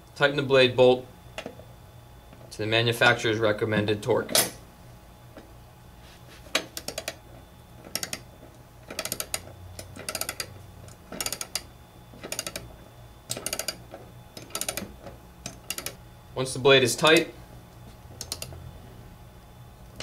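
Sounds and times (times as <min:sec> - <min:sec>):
socket wrench ratchet clicking: 0:08.9 - 0:09.4, 0:10.0 - 0:10.5, 0:11.2 - 0:11.6, 0:13.3 - 0:13.8, 0:14.4 - 0:14.9.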